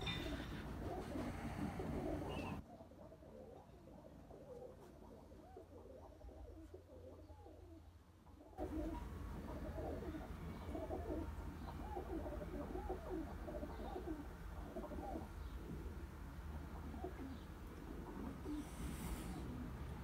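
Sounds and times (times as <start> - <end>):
pigeons cooing: 0.0 - 20.0
background hiss: 8.6 - 20.0.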